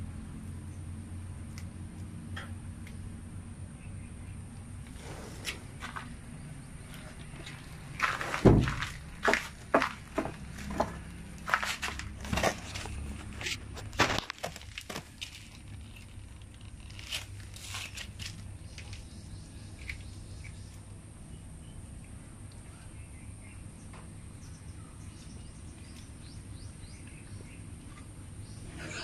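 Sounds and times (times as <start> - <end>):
sharp crunching clicks: 7.4 - 19.1.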